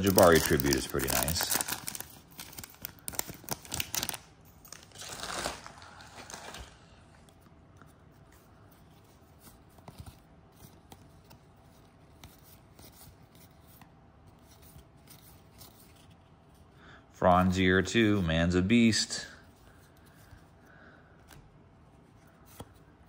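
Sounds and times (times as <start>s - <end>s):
wrapper tearing and crinkling: 0.0s - 7.0s
cards sliding and flicking: 22.2s - 22.9s.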